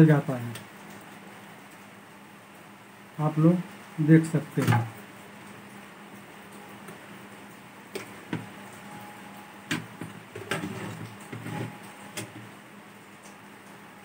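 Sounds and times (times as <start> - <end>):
rustling and scraping: 9.7 - 12.6.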